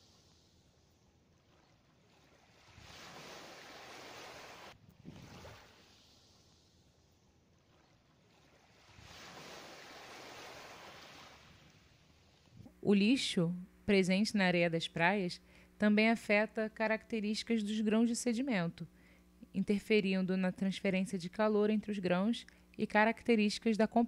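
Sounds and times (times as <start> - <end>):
faint ocean surf: 1.5 - 12.6.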